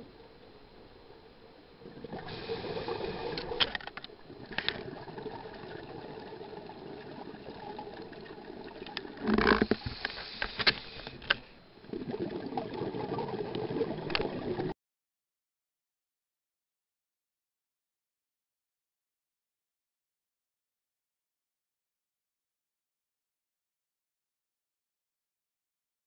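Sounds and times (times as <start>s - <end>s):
rush of exhaled bubbles: 1.8s - 3.6s, 4.3s - 9.2s, 11.9s - 14.7s
diver breathing through regulator: 2.1s - 3.6s.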